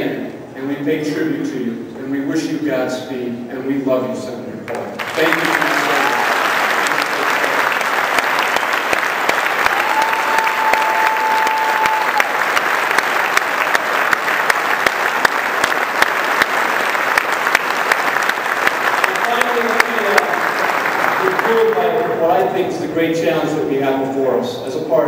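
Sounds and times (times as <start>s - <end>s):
audience applauding: 4.9s - 22.4s.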